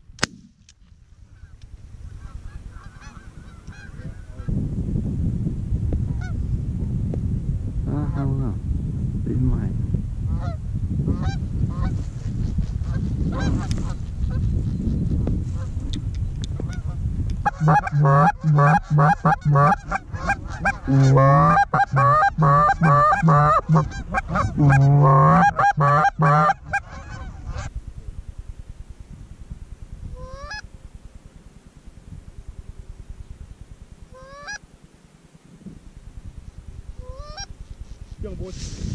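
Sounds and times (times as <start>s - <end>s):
geese honking: 2.2s - 4.5s, 16.7s - 27.7s, 34.1s - 34.6s, 37.0s - 37.5s.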